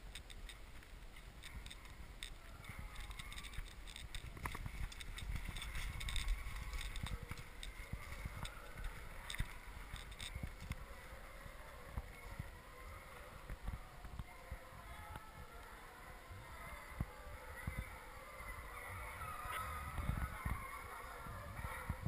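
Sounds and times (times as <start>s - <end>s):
dry leaves rustling and snapping: 0.0s - 12.5s
wind rumble on microphone: 0.0s - 22.0s.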